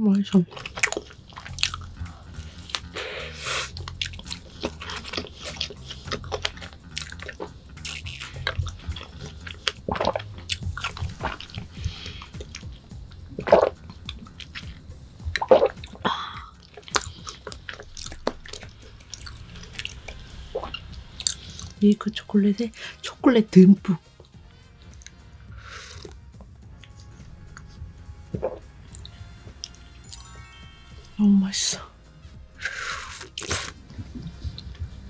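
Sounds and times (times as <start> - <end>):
soft background music: 0.0 - 35.0
wet chewing with mouth clicks: 0.4 - 23.0, 24.0 - 29.9, 32.2 - 35.0
sipping through a straw: 0.6 - 12.8, 24.8 - 26.2, 32.6 - 34.8.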